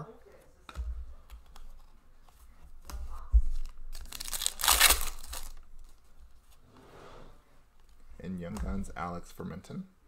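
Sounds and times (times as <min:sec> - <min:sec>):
foil wrapper ripping: 0:03.9 - 0:05.6.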